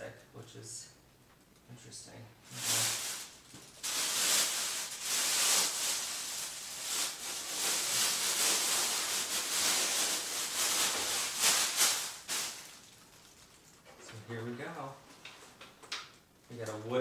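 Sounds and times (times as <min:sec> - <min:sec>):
plastic wrap crinkling: 0:02.5 - 0:15.3.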